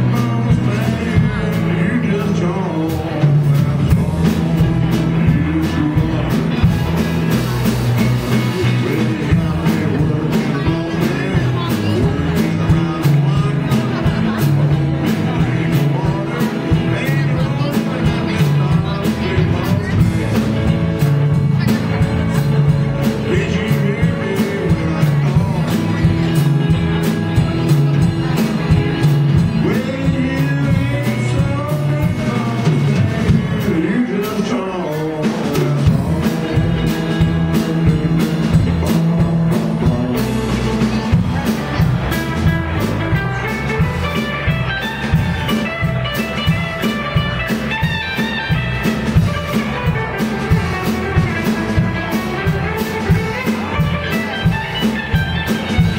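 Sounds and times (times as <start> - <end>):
blues band playing: 0.0 - 55.9
blues harmonica: 0.0 - 55.9
drum kit steady beat: 0.0 - 55.9
electric guitars: 0.0 - 55.9
repeating bass line: 0.0 - 55.9.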